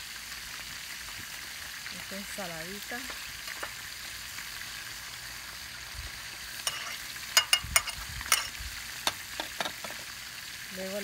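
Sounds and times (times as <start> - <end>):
metal utensil clinking on china plate: 6.6 - 8.6.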